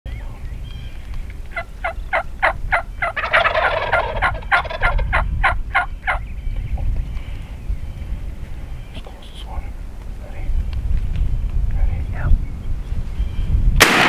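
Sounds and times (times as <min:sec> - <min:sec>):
turkeys calling: 0:00.1 - 0:07.6
rattling turkey gobble: 0:01.5 - 0:06.2.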